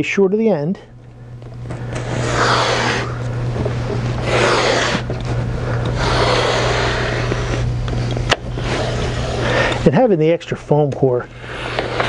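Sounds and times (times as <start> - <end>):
steady low hum: 0.0 - 12.0
rail cutter slicing foam board: 1.9 - 3.2, 4.2 - 5.1, 5.8 - 7.7, 8.3 - 9.8, 11.4 - 12.0.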